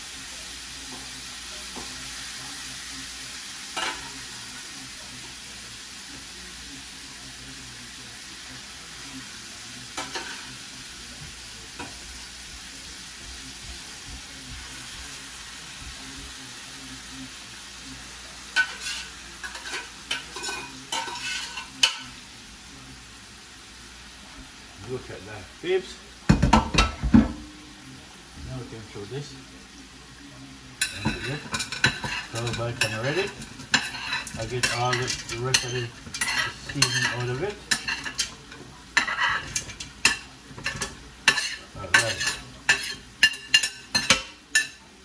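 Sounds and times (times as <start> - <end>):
chicken sizzling in a pot: 0.0 - 45.0
utensil scraping a pot: 18.6 - 22.0, 30.8 - 44.7.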